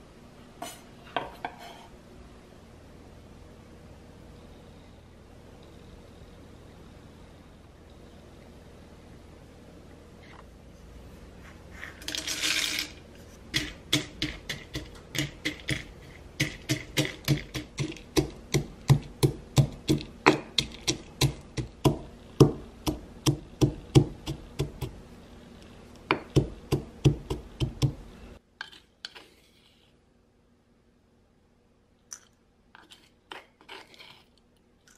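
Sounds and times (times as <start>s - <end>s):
peanuts rattling into mortar: 12.0s - 21.7s
pestle pounding in mortar: 13.5s - 25.0s, 26.1s - 28.0s.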